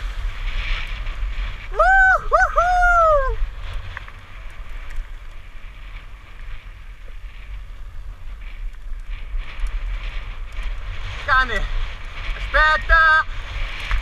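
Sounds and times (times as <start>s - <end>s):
wind rumbling on microphone: 0.0s - 14.0s
person whooping: 1.7s - 3.4s
bike clicks and rattles: 3.4s - 14.0s.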